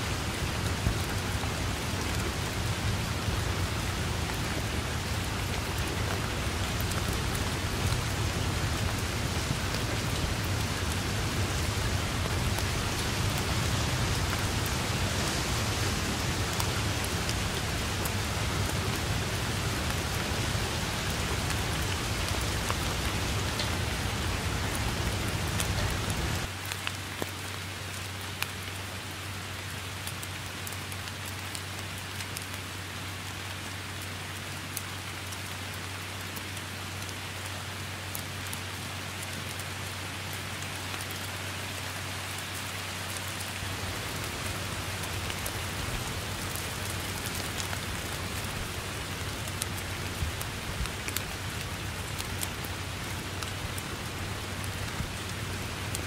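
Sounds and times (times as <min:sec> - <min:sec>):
heavy rain on foliage: 0:00.0 - 0:56.0
raindrop taps: 0:21.0 - 0:26.5.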